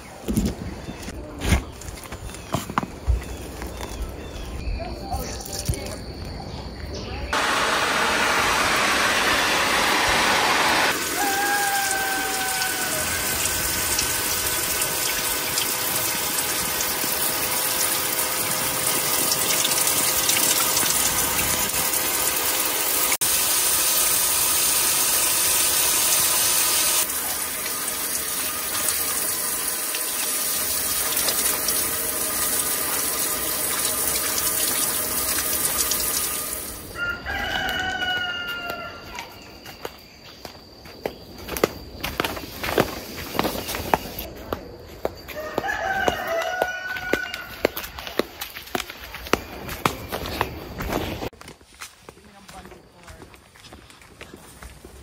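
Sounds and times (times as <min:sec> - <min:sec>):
shower water spraying on gravel: 0:08.1 - 0:36.9.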